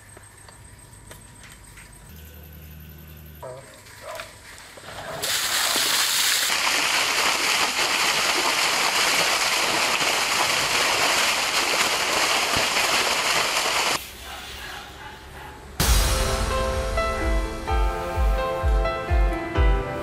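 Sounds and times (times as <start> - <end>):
water gushing from a pipe: 5.2 - 14.0
water splashing onto concrete: 5.2 - 14.0.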